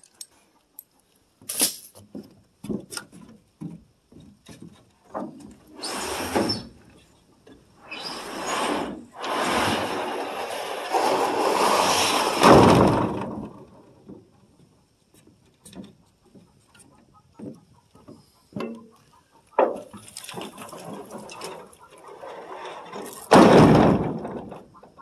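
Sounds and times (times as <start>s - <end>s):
long metallic scrape: 7.8s - 12.8s
metal roofing sheets clattering: 8.0s - 13.7s, 19.6s - 25.0s.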